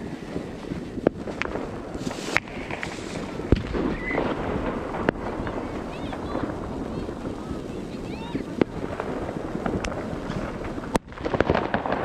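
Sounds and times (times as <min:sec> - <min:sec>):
wind buffeting microphone: 0:00.0 - 0:12.0
sharp pops: 0:00.7 - 0:12.0.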